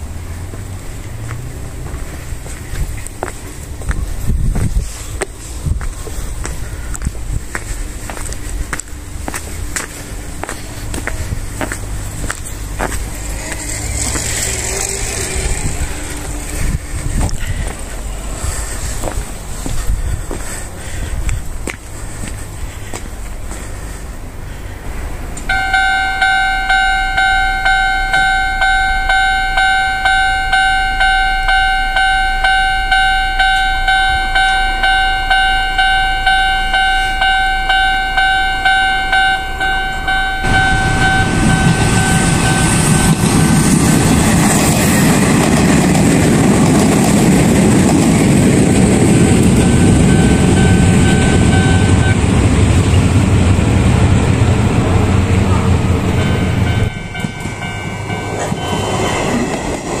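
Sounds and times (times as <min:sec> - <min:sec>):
train passing loudly: 0:00.0 - 1:00.0
level-crossing warning bell: 0:06.5 - 0:18.1, 0:25.5 - 0:46.5, 0:47.1 - 1:00.0.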